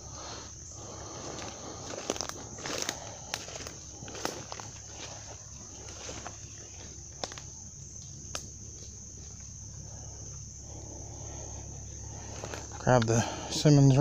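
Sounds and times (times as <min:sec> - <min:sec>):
high-pitched insect chorus: 0:00.0 - 0:14.0
footsteps rustling through leaves: 0:01.1 - 0:07.7.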